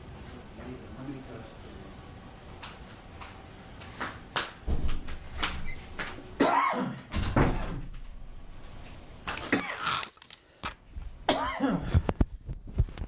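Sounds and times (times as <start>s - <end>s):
man clearing his throat: 6.4s - 7.1s, 11.3s - 12.0s
man coughing: 6.4s - 7.1s, 9.4s - 9.9s, 11.3s - 12.0s.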